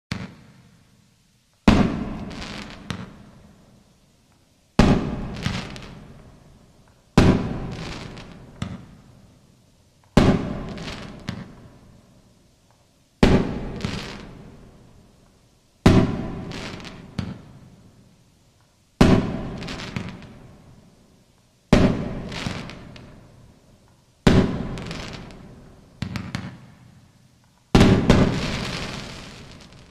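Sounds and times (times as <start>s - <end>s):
crackling firework pops: 0.1s - 0.7s, 1.5s - 3.3s, 4.2s - 6.2s, 6.8s - 9.1s, 10.0s - 11.7s, 12.6s - 14.5s, 15.2s - 17.6s, 18.5s - 20.5s, 21.4s - 23.2s, 23.8s - 29.9s
firework bangs: 1.6s - 3.3s, 4.8s - 6.1s, 7.2s - 9.0s, 10.1s - 11.6s, 13.2s - 14.5s, 15.8s - 17.5s, 19.0s - 20.4s, 21.7s - 23.2s, 24.3s - 26.7s, 27.7s - 29.9s.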